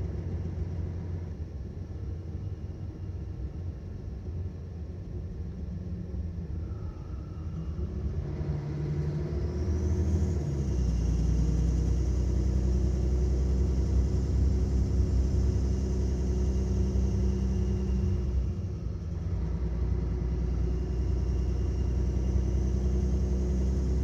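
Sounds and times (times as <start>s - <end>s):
bus engine running: 0.0s - 24.0s
faint high whine: 5.1s - 13.2s, 14.4s - 19.3s.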